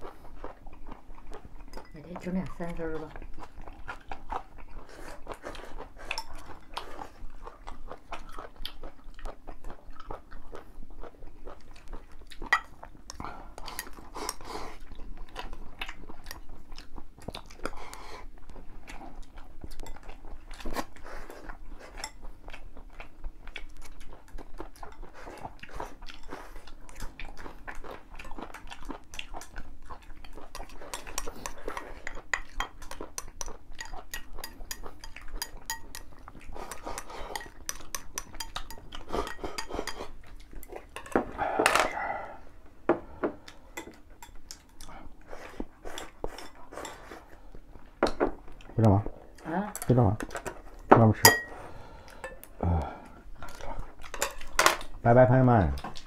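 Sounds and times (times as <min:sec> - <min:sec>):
chewing: 0:00.0 - 0:42.7, 0:43.3 - 0:55.0, 0:55.7 - 0:56.0
chopsticks clicking on porcelain bowls: 0:30.6 - 0:40.1.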